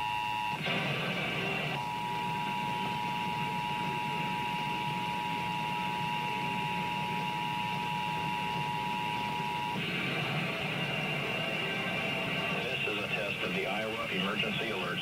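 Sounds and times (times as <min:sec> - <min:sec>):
two-tone alarm through tv speaker: 0:00.0 - 0:00.6, 0:01.8 - 0:09.8.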